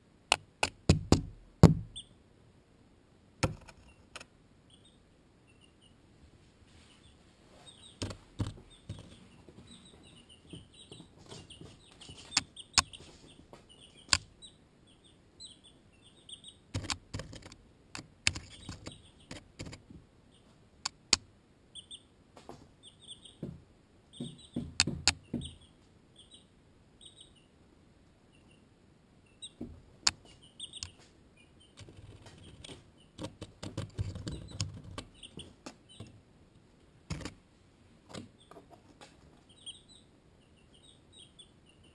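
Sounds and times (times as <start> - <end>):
baby chicks peeping: 0.3 - 2.2, 3.4 - 41.9
chicks pecking at camera: 6.9 - 21.2, 29.3 - 36.2, 36.8 - 37.4, 38.1 - 41.9.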